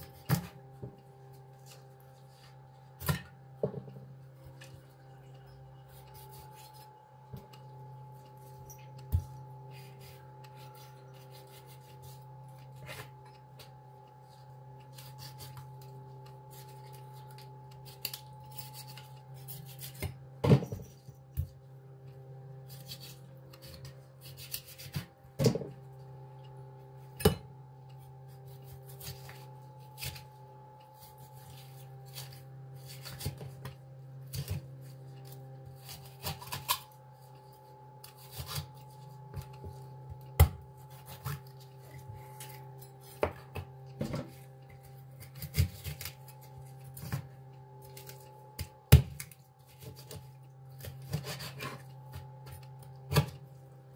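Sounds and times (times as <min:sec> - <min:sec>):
steady low hum: 0:00.0 - 0:53.9
knife cutting raw chicken: 0:09.1 - 0:13.2, 0:14.9 - 0:20.2, 0:22.7 - 0:25.1, 0:28.0 - 0:30.3, 0:30.9 - 0:37.0, 0:38.0 - 0:53.4.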